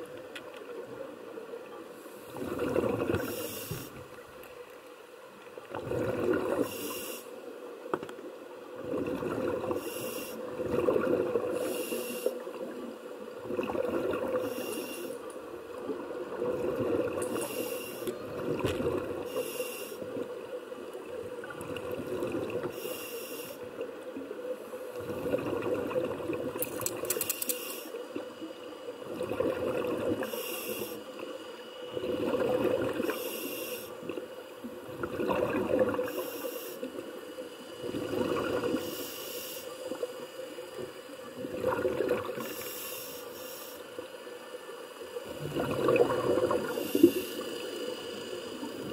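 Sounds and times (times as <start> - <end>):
gurgle of exhaled bubbles: 2.3 - 3.4, 5.7 - 6.8, 8.8 - 9.8, 10.5 - 11.6, 13.4 - 14.5, 16.2 - 17.4, 18.2 - 19.3, 21.4 - 22.7, 25.0 - 27.3, 29.0 - 30.3, 32.0 - 33.2, 34.8 - 36.2, 37.8 - 38.8, 41.4 - 42.5, 45.2 - 47.3
regulator inhale hiss: 3.2 - 4.2, 6.6 - 7.5, 9.7 - 10.6, 11.5 - 12.5, 14.3 - 15.4, 17.3 - 18.2, 19.2 - 20.3, 22.6 - 23.8, 27.2 - 28.5, 30.2 - 31.9, 33.0 - 34.1, 36.0 - 38.1, 38.7 - 41.2, 42.4 - 44.2, 46.6 - 48.9.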